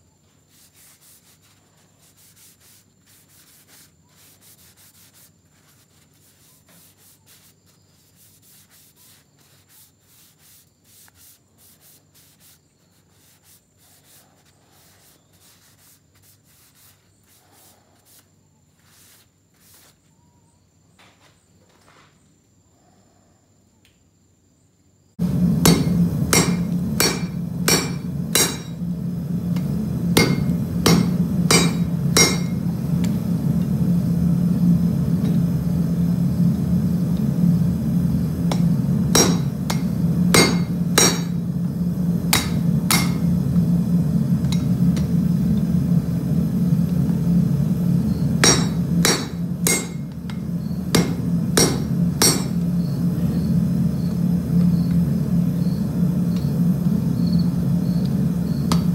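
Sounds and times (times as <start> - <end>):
steady low hum: 25.0 - 58.9
hammer striking hot steel on anvil: 25.2 - 33.7, 38.4 - 43.4, 44.4 - 45.2, 48.0 - 52.9, 58.6 - 58.9.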